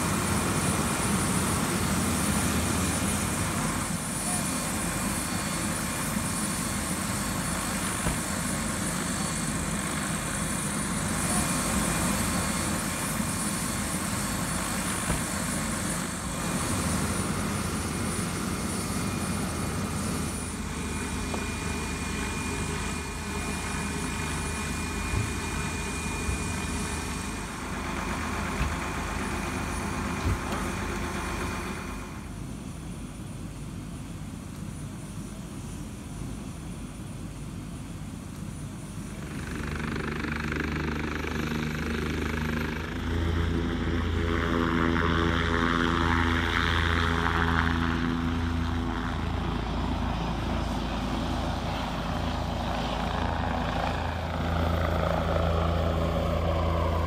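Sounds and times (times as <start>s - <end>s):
thin high whine: 0.0s - 33.0s
helicopter turbine and rotor rushing: 0.0s - 57.0s.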